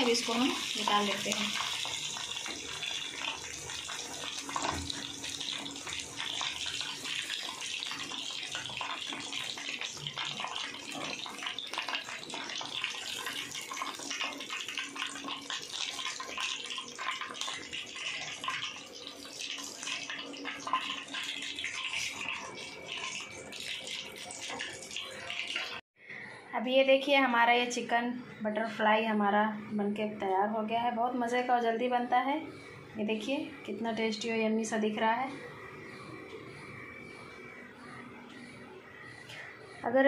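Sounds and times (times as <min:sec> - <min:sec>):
hot oil sizzling and crackling: 0:00.0 - 0:25.8.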